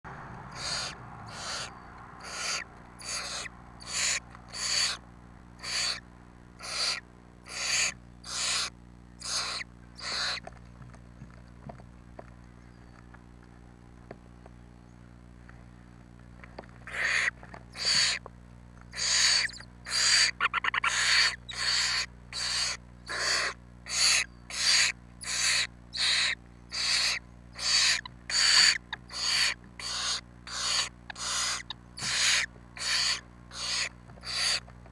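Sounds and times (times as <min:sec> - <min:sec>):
owl chicks hissing begging calls: 0:00.5 - 0:05.0, 0:05.6 - 0:06.0, 0:06.6 - 0:10.5, 0:16.9 - 0:18.2, 0:18.9 - 0:34.6.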